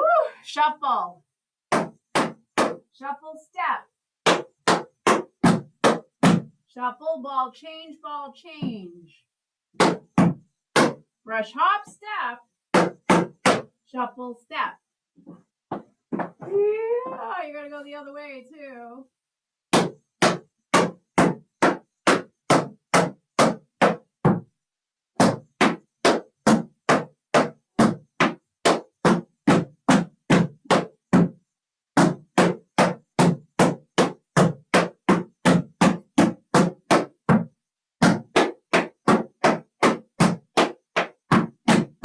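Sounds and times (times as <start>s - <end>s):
tap shoes on wooden board: 1.7s - 2.8s, 4.2s - 6.5s, 9.8s - 11.0s, 12.7s - 13.7s, 15.2s - 16.5s, 19.7s - 24.5s, 25.2s - 31.4s, 32.0s - 42.0s.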